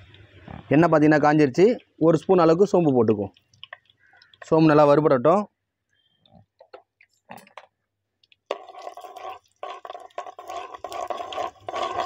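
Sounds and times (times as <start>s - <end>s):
seeds frying in hot oil: 8.5s - 12.0s.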